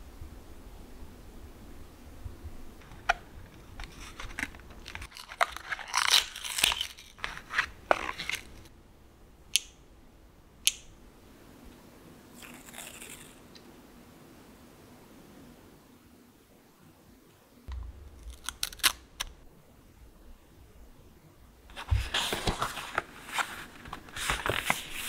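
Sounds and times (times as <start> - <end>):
plastic packaging crinkling: 2.8 - 8.7, 18.2 - 19.3.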